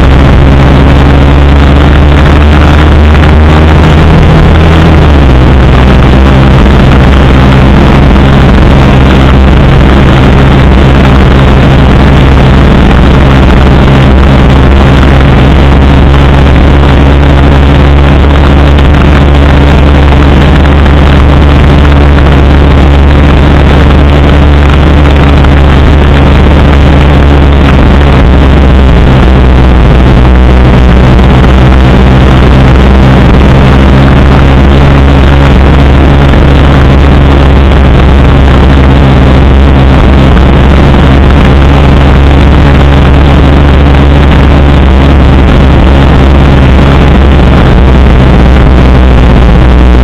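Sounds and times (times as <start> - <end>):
motorcycle engine cruising: 0.0 - 50.0
wind rushing over microphone: 0.0 - 50.0.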